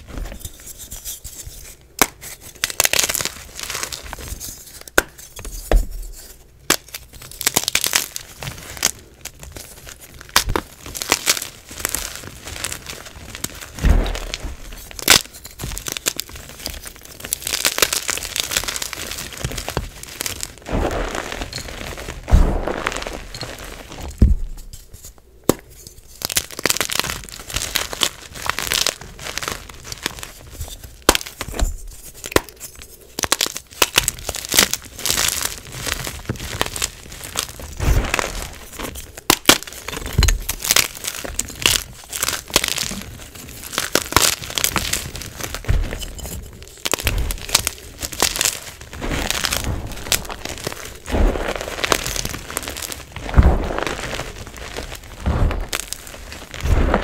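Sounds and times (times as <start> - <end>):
sharp crackles: 10.1 - 24.7, 33.2 - 57.0
chalk crunching by hand: 36.6 - 57.0.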